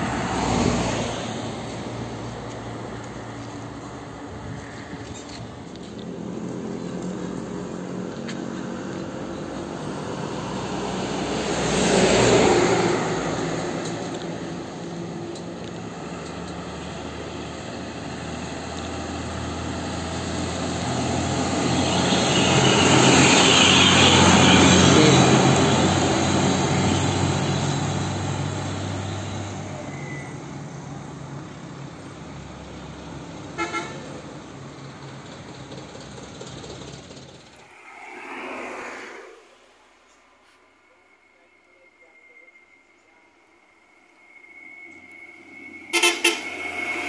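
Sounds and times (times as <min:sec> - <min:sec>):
dump truck diesel engine passing: 0:00.0 - 0:40.1, 0:42.6 - 0:47.0
truck horn toot: 0:21.6 - 0:25.9, 0:33.5 - 0:34.2, 0:45.9 - 0:47.0.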